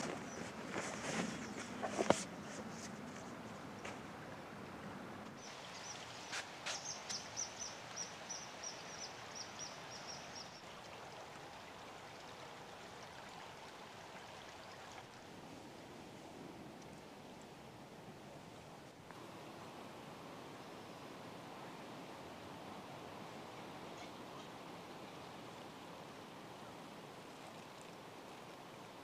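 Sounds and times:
river flowing over stones: 3.5 - 16.0.

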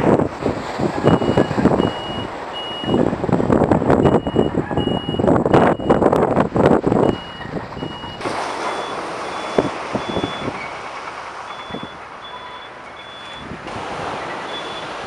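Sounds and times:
backup alarm beeping: 1.0 - 3.1, 4.0 - 6.1, 7.0 - 10.8, 11.4 - 13.5, 14.4 - 15.0
machinery noise: 7.0 - 15.0.

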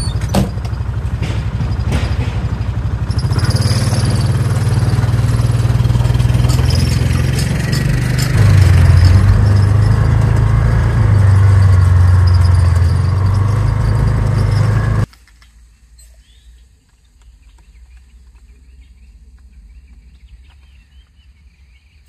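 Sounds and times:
engine running: 0.0 - 15.1.

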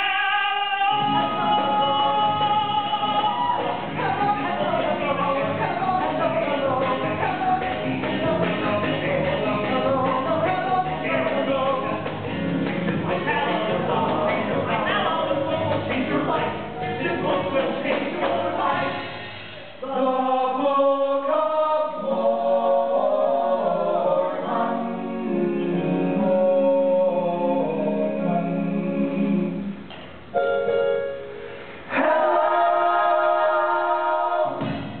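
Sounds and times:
band playing: 0.9 - 19.0
choir singing in harmony: 0.9 - 29.8, 31.9 - 35.0.

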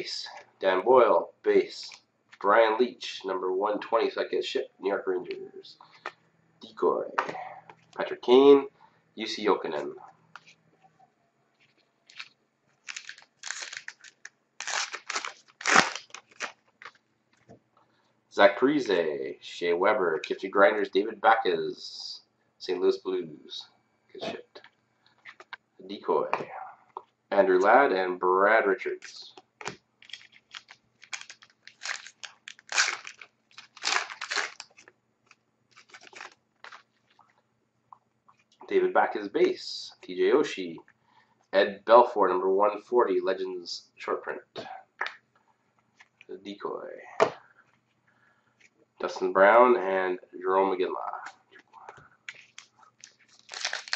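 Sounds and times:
wrapper tearing and crinkling: 12.1 - 17.0, 29.6 - 36.9, 52.3 - 53.9.

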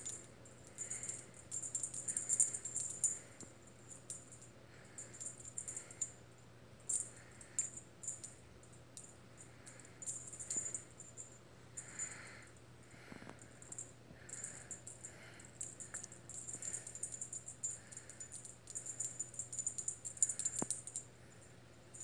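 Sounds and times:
cat toy jingling: 0.0 - 3.2, 9.7 - 12.2, 13.6 - 21.0.

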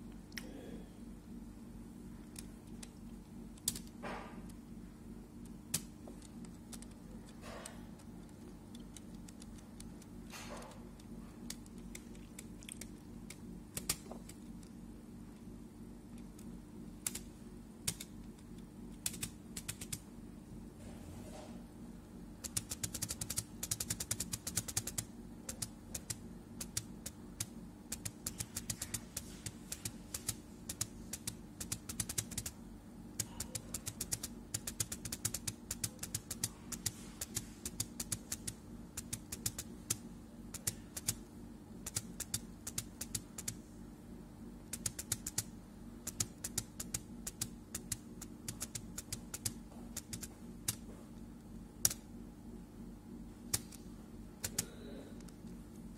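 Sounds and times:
steady low hum: 0.0 - 55.9
keyboard typing: 5.7 - 10.1, 11.0 - 14.7, 17.0 - 18.4, 19.0 - 20.0, 22.4 - 32.6, 33.2 - 41.2, 41.8 - 43.6, 44.7 - 50.9, 54.4 - 55.3.

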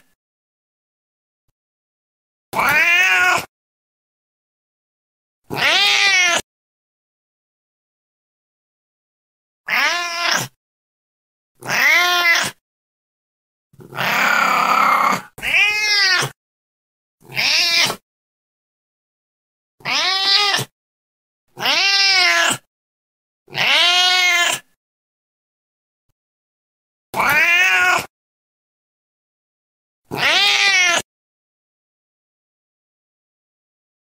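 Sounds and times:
cat meowing: 2.6 - 3.5, 5.5 - 6.4, 9.7 - 10.6, 11.6 - 12.6, 13.8 - 16.4, 17.2 - 18.0, 19.8 - 20.7, 21.6 - 22.7, 23.5 - 24.7, 27.2 - 28.1, 30.1 - 31.0.

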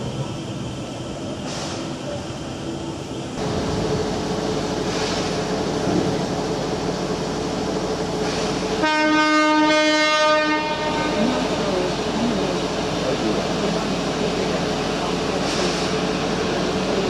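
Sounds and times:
train running noise: 0.0 - 17.0
train horn: 8.8 - 11.5.

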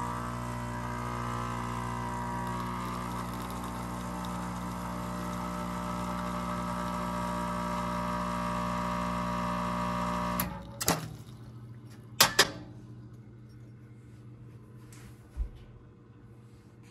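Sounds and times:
espresso machine pump humming: 0.0 - 11.8.

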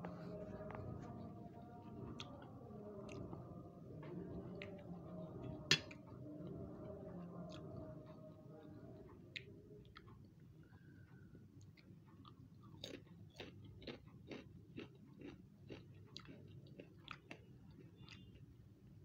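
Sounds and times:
low background hum: 0.0 - 19.0
potato chips being chewed: 11.6 - 18.5.

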